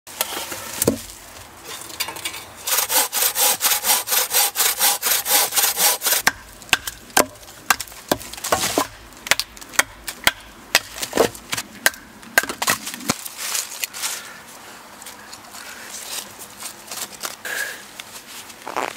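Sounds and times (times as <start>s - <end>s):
sharp knocks of wood splitting: 0.8s - 1.1s, 6.2s - 13.2s.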